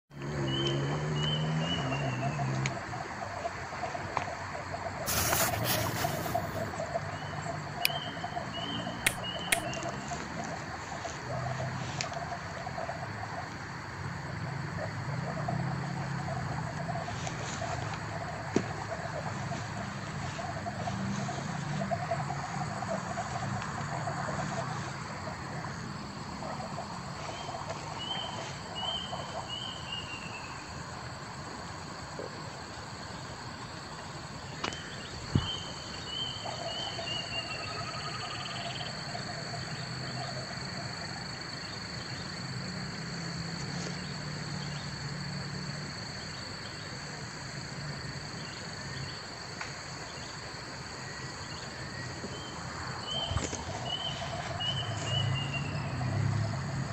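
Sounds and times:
short repeated chirping calls: 0:05.1 - 0:06.8, 0:07.8 - 0:09.8
high-pitched insect drone: 0:05.1 - 0:06.9
sharp click: 0:09.0 - 0:09.8.

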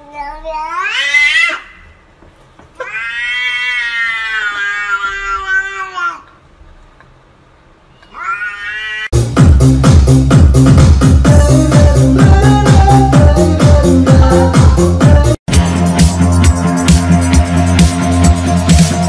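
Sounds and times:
cats meowing: 0:02.8 - 0:06.3, 0:08.0 - 0:09.2
dance music with steady beat: 0:09.2 - 0:19.0.

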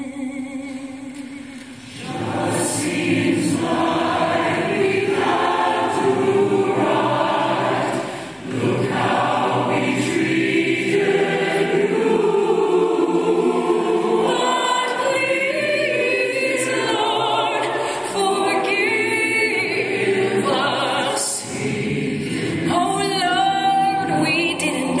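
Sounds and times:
choir singing a cappella: 0:01.2 - 0:25.0
female soloist singing: 0:14.3 - 0:21.4.

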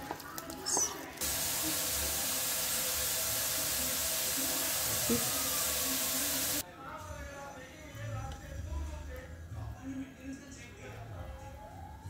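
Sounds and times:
steady hiss: 0:01.2 - 0:06.6.

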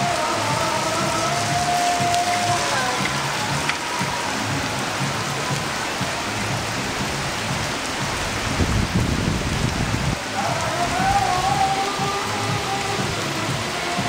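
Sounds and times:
heavy rain on pavement and roofs: 0:00.0 - 0:14.0
low rumble: 0:02.4 - 0:11.7.

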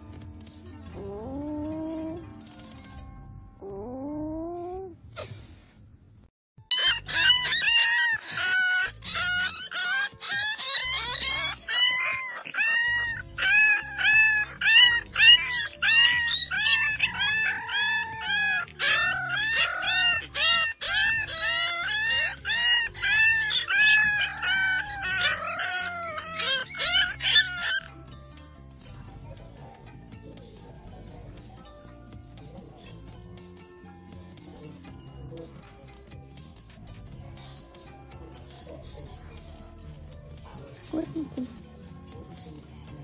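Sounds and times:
puppy yelping: 0:06.7 - 0:28.2.

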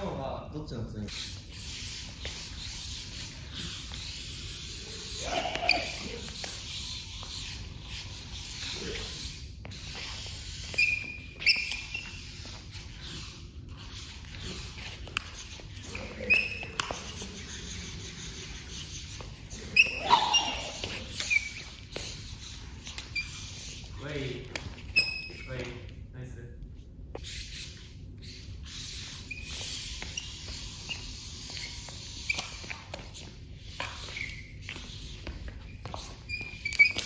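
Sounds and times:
diabolo squeaks and knocks: 0:10.0 - 0:12.6, 0:15.8 - 0:17.1, 0:19.2 - 0:22.2, 0:24.7 - 0:25.8, 0:33.8 - 0:37.0.

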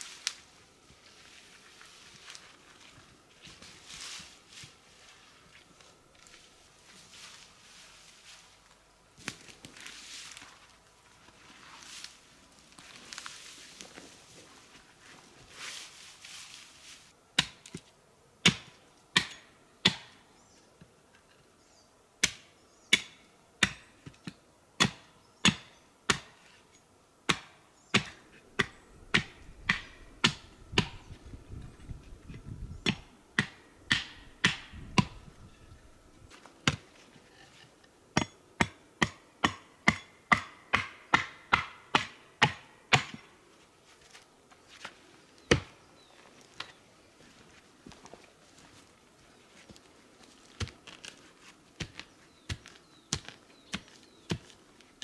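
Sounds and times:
axe chopping wood: 0:17.4 - 0:17.8, 0:18.4 - 0:20.2, 0:22.2 - 0:23.8, 0:24.8 - 0:26.4, 0:27.3 - 0:31.0, 0:32.8 - 0:35.2, 0:36.6 - 0:36.9, 0:38.2 - 0:43.3, 0:51.8 - 0:54.5.

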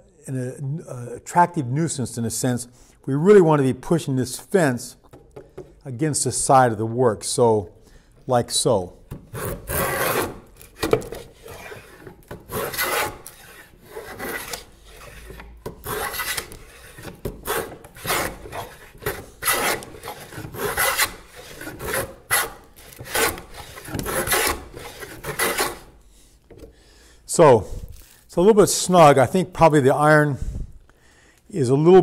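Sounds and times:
hand plane scraping wood: 0:09.3 - 0:26.6.

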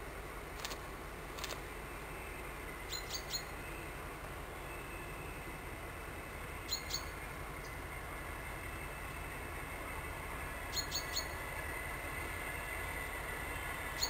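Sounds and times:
distant diesel locomotive rumble: 0:00.0 - 0:14.0
small bird chirping: 0:02.9 - 0:03.8, 0:06.7 - 0:07.8, 0:10.7 - 0:11.4.

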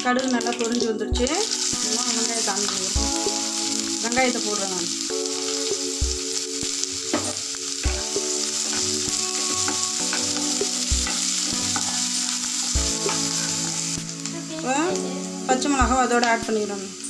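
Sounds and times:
onions sizzling in oil: 0:00.0 - 0:17.0
wooden spatula knocking pan: 0:07.1 - 0:13.8.

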